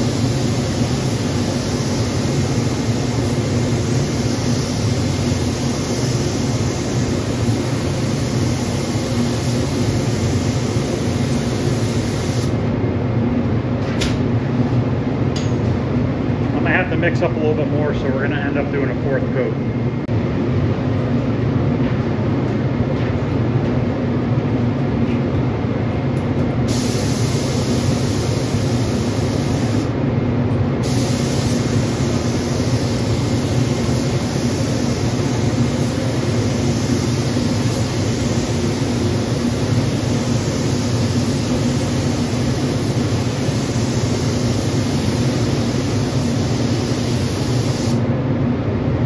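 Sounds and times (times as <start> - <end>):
spray gun hissing: 0.0 - 12.6, 26.7 - 30.0, 30.8 - 48.1.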